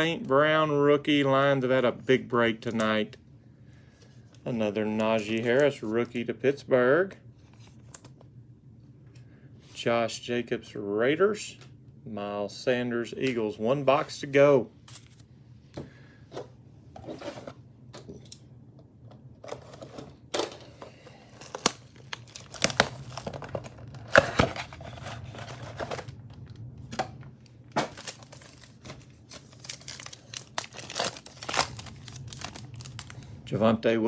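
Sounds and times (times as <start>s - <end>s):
foil packs rustling: 20.8s - 26.2s, 27.8s - 33.3s
plastic shrink wrap tearing: 21.3s - 26.2s, 27.8s - 33.3s.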